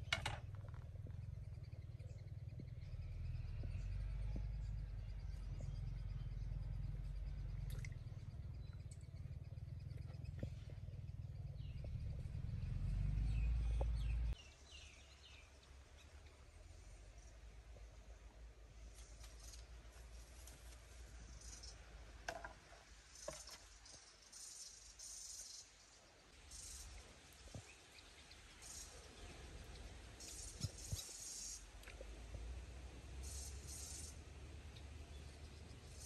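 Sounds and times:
faint bird chirps: 0.0s - 18.2s, 23.1s - 32.0s, 33.2s - 36.0s
low steady rumble: 0.0s - 22.4s.

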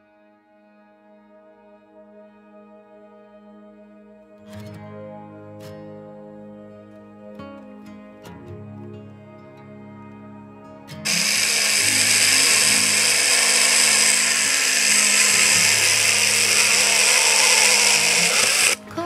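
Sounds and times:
mini chainsaw cutting log: 11.1s - 18.8s.

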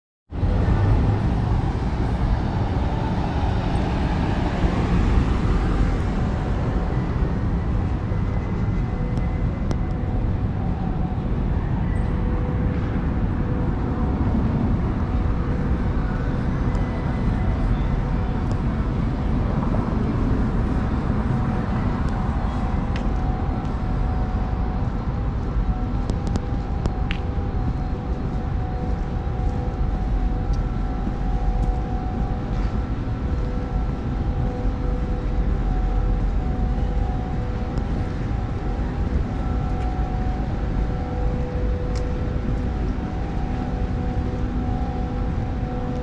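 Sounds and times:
traffic rumble: 0.3s - 46.0s
faint steady hums: 0.4s - 46.0s.

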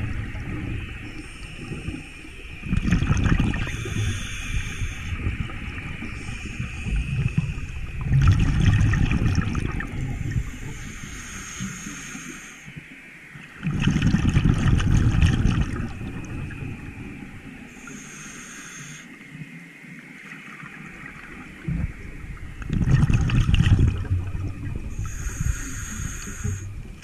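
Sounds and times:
exhaled bubbles underwater: 0.0s - 12.6s, 13.5s - 18.0s, 20.2s - 27.0s
regulator inhalation hiss: 3.6s - 5.3s, 6.0s - 8.0s, 10.0s - 12.8s, 17.6s - 19.2s, 24.9s - 26.9s.

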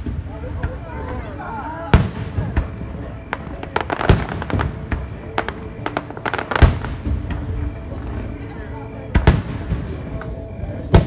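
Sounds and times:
fireworks crackling pops: 0.0s - 8.4s
fireworks booms: 0.0s - 11.0s.

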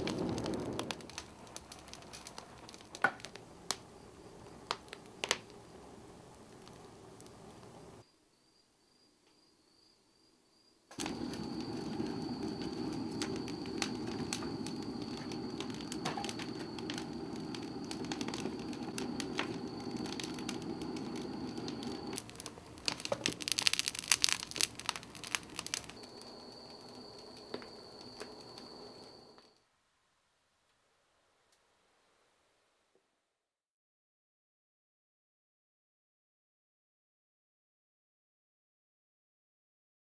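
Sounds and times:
burning wood crackling: 0.0s - 8.0s, 10.9s - 29.5s
kiln fire roaring: 0.0s - 8.0s, 10.9s - 29.6s.

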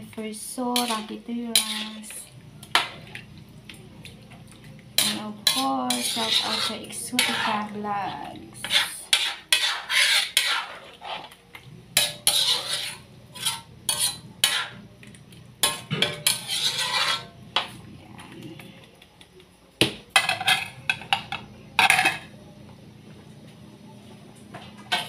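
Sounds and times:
metal utensil scraping a wok: 0.7s - 3.2s, 5.0s - 11.4s, 12.0s - 14.8s, 15.6s - 17.8s.

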